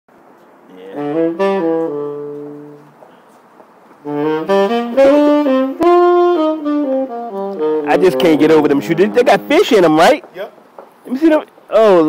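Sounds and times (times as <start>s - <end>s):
saxophone solo: 0.7s - 3.0s, 4.0s - 10.1s.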